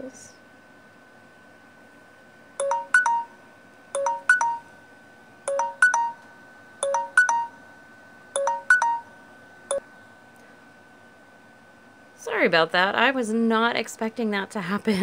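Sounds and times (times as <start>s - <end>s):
phone ringtone beeping: 2.6s - 3.4s, 4.0s - 4.7s, 5.5s - 6.2s, 6.8s - 7.6s, 8.4s - 9.1s.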